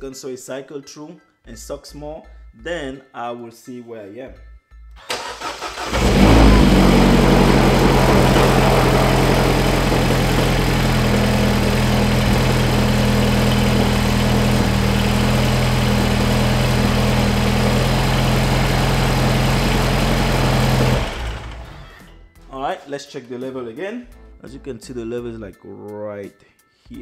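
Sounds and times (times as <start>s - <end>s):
car engine starting and idling: 5.0s - 22.1s.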